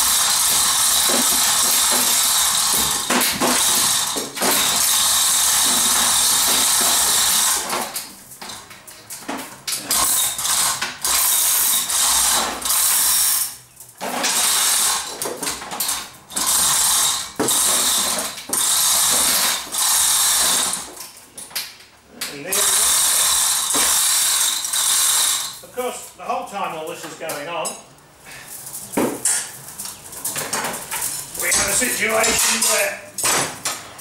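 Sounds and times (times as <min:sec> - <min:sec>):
chain rattling through hoist: 0:22.5 - 0:25.6, 0:30.2 - 0:33.0.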